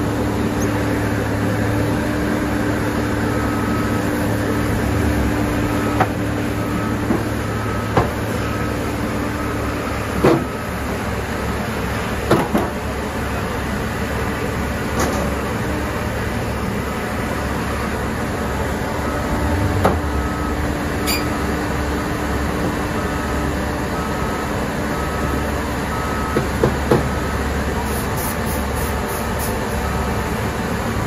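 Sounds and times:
diesel engine idling: 0.0s - 27.8s
faint short beeps: 19.0s - 21.4s.

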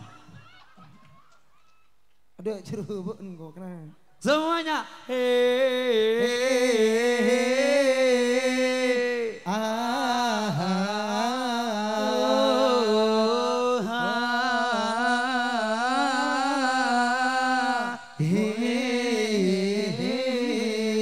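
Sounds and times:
man singing into a microphone: 4.2s - 21.0s.

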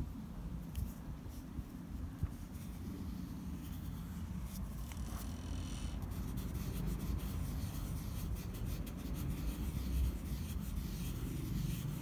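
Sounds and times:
pencil rubbing on paper: 2.4s - 12.0s.

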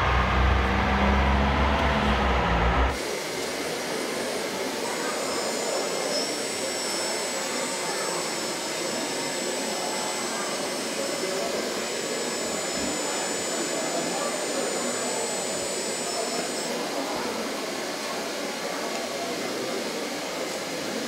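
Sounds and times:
loud low drone: 0.0s - 3.2s
mechanical hum with whine: 0.0s - 21.0s.

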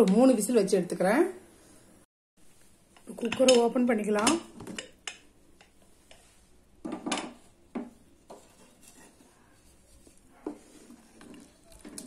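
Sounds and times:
wooden spoon knocking and scraping pot: 2.9s - 12.0s.

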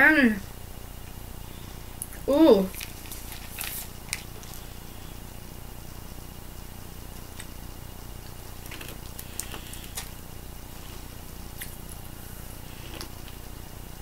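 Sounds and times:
candy crackles while eating: 2.0s - 4.7s, 8.6s - 10.2s.

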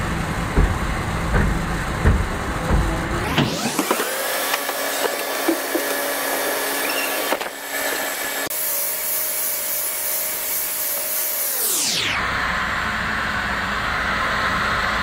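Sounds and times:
rotary polisher buffing: 0.6s - 11.7s
power tool motor whine: 2.4s - 15.0s.

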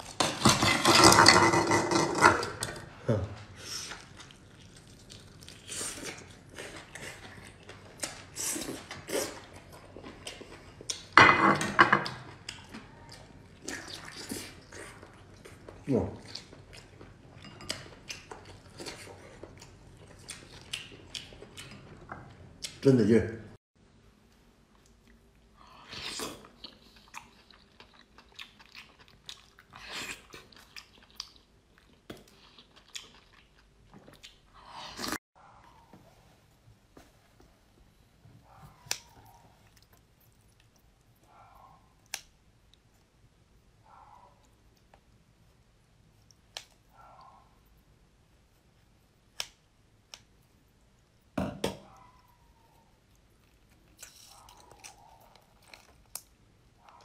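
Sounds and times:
chewing and mouth clicks: 3.9s - 11.1s, 12.0s - 22.8s, 25.9s - 34.5s, 38.5s - 43.1s, 51.9s - 57.0s
person eating oysters: 25.9s - 35.2s, 51.0s - 57.0s.

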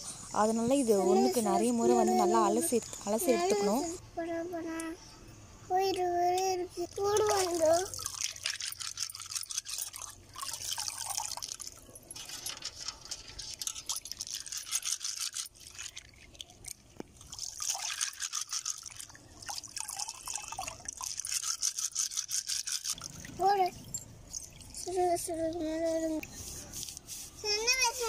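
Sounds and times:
water swishing and splashing: 6.9s - 25.7s.

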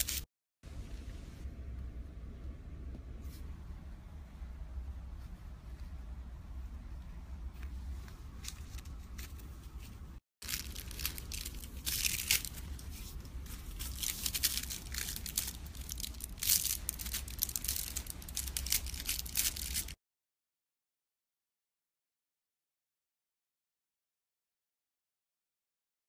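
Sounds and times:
plastic crinkling and crackling: 10.4s - 20.0s.

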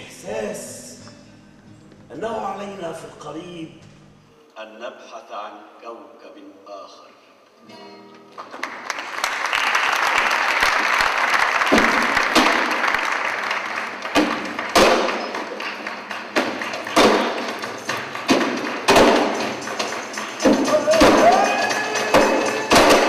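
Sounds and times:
audience applause: 8.4s - 23.0s
heavy thumps: 16.3s - 21.4s.

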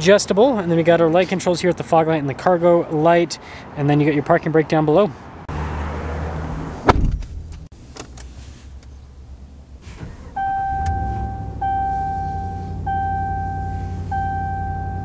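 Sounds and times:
car warning chime: 10.3s - 15.0s.

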